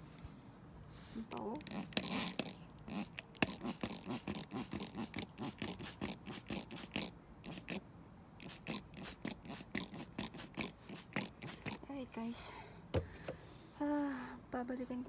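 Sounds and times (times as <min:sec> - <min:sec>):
spray bottle hissing sprays: 0:01.6 - 0:07.8, 0:08.4 - 0:11.8.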